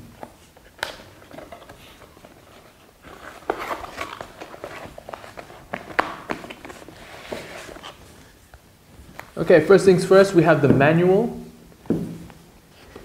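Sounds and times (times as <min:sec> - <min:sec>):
cardboard and paper rustling: 0:00.3 - 0:08.4.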